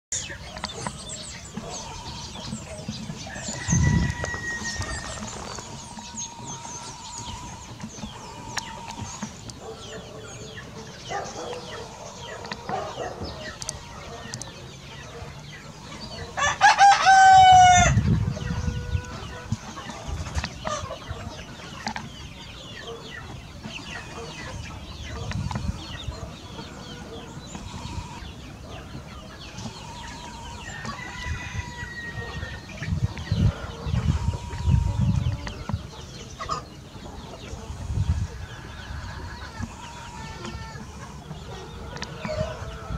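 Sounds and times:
hens clucking: 0.1 - 42.9
rooster crowing: 3.3 - 5.2, 16.4 - 18.0.

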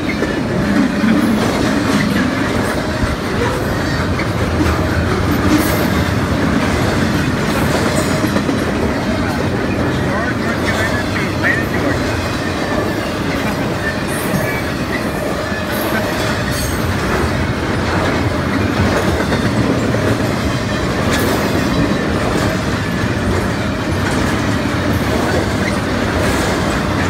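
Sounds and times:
steel wheels rolling on rail: 0.0 - 27.0
high-pitched wheel squeaks: 6.9 - 17.6.

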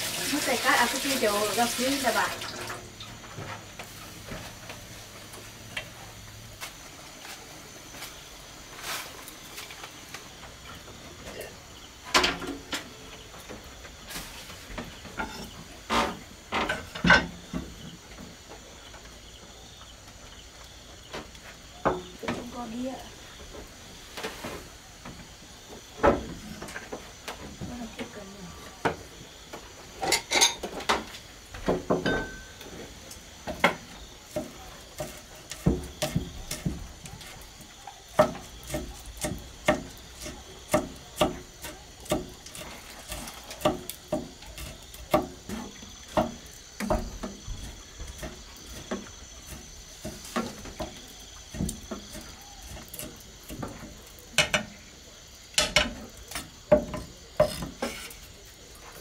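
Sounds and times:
cleaver chopping on wooden board: 38.2 - 45.4.

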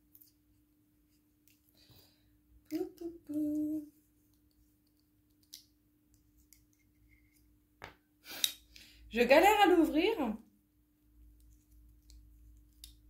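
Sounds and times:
woman humming: 2.7 - 3.9.

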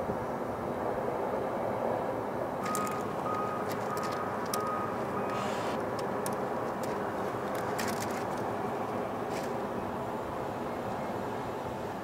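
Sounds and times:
city traffic: 0.0 - 12.0
sharp clicks: 2.6 - 8.5.

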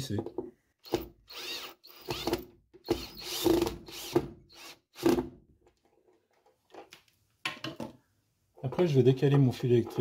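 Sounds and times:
cordless drill driving a screw: 0.8 - 5.2.

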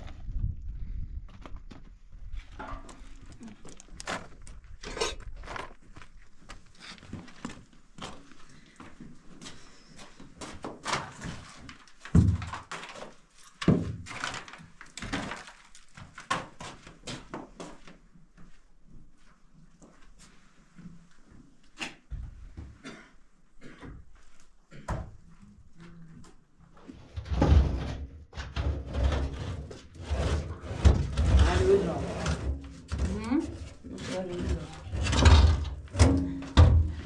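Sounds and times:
things scraping and rustling: 26.8 - 37.0.

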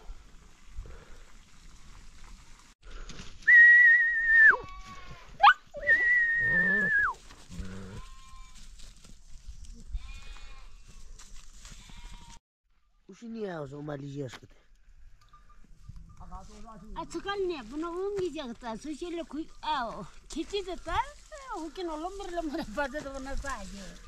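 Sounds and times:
person whistling: 3.4 - 4.6, 5.8 - 7.2
sheep bleating: 7.5 - 8.6, 9.9 - 10.8.

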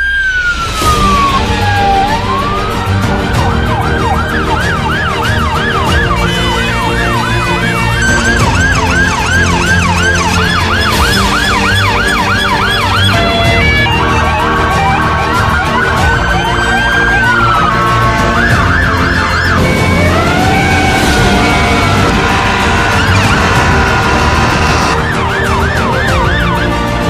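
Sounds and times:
siren yelping: 0.0 - 26.8
stepped siren tone: 7.0 - 25.1.

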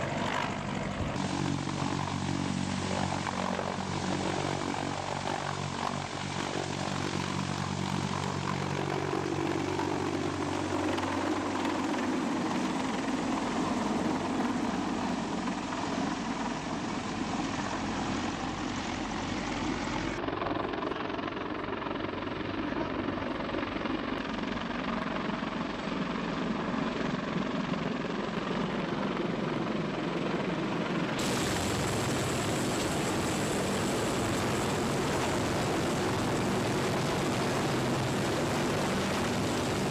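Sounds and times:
helicopter rotor and turbine rush: 0.0 - 39.9
hissy rotor downwash: 31.2 - 39.9.

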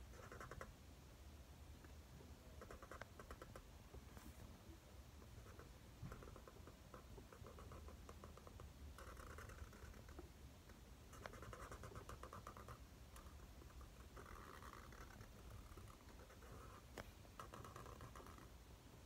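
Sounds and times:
marker scratching on paper: 0.0 - 0.7, 11.1 - 18.5.

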